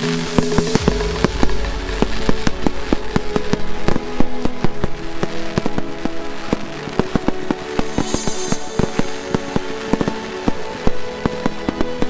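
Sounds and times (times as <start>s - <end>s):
fireworks bangs and crackles: 0.0s - 12.0s
music playing: 0.0s - 12.0s
low rumble: 0.7s - 5.9s.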